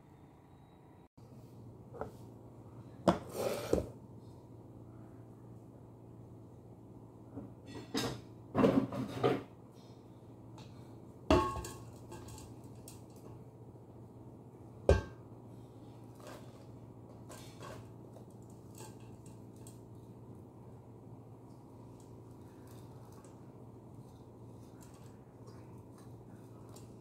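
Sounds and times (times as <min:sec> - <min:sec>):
metal pot clattering: 0:11.3 - 0:13.2.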